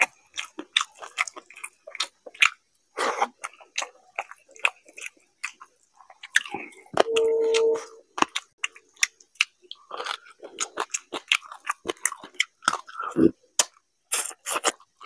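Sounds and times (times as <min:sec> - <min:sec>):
chewing smacks: 0:03.2 - 0:07.1, 0:08.2 - 0:15.0
hummed tone: 0:07.0 - 0:08.0.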